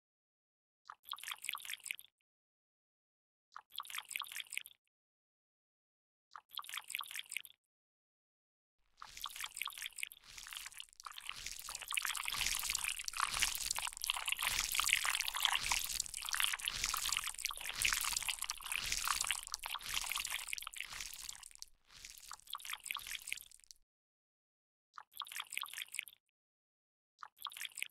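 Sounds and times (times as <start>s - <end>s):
liquid dripping and trickling: 9.0s - 23.8s.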